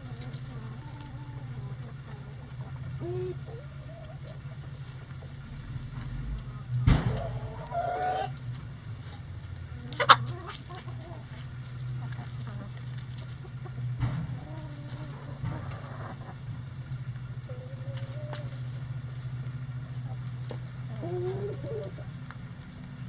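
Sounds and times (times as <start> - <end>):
hens clucking: 0.0 - 23.0
steady low hum: 0.0 - 23.0
short wavering hen calls: 0.8 - 4.7, 7.2 - 8.4, 20.8 - 22.1
sharp knock: 6.8 - 7.4.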